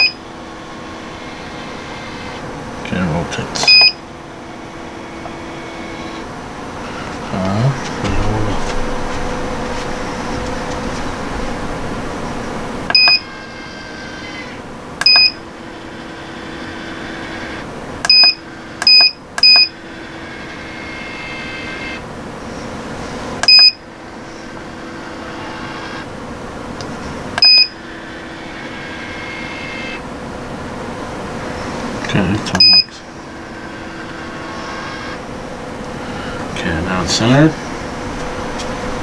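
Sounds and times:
incubator humming: 0.0s - 39.0s
short electronic beeps: 3.6s - 4.0s, 12.9s - 13.2s, 15.0s - 15.4s, 18.1s - 19.7s, 23.5s - 23.8s, 27.4s - 27.7s, 32.6s - 32.9s.

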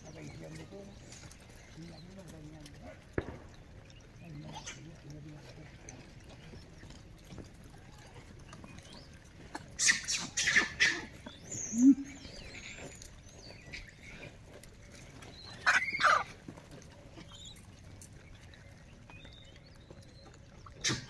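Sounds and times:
monkeys squealing shrilly: 9.8s - 12.6s, 15.6s - 16.3s
monkey low grunt: 20.7s - 21.0s.

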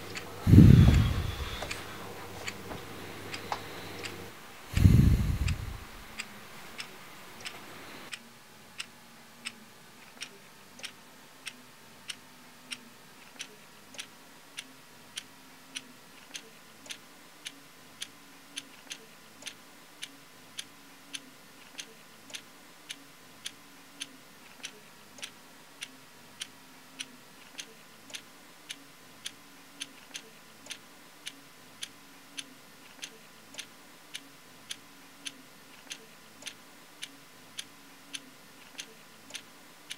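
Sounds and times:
faint steady hum: 0.0s - 39.9s
clock ticking: 10.2s - 39.9s.

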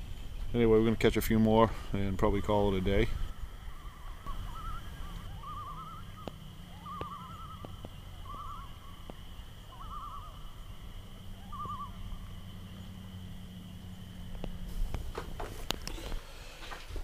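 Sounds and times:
low hum: 0.0s - 16.6s
wavering trilled animal calls: 2.4s - 14.4s.

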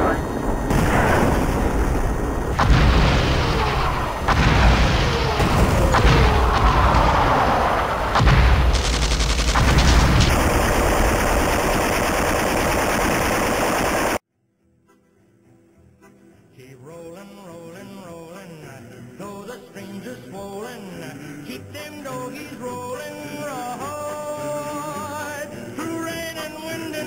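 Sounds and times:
sharp gunfire reports: 0.0s - 14.2s.

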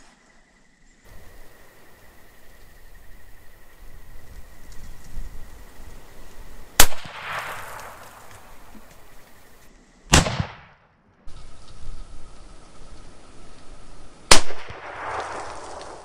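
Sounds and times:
rifle shots: 6.8s - 8.5s, 10.1s - 10.9s, 14.3s - 16.0s
rolling echo: 6.8s - 8.8s, 10.1s - 11.1s, 14.3s - 16.0s.

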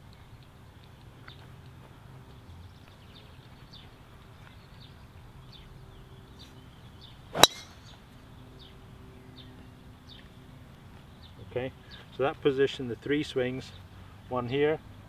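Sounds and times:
golf driver striking ball: 7.4s - 7.9s.

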